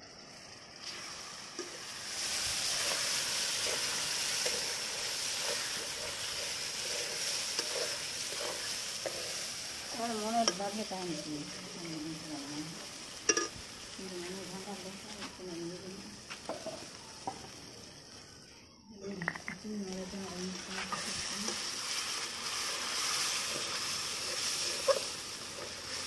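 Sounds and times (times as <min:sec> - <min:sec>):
spices sizzling in oil: 0:00.0 - 0:26.0
metal spatula clinking on pan: 0:13.3 - 0:13.6.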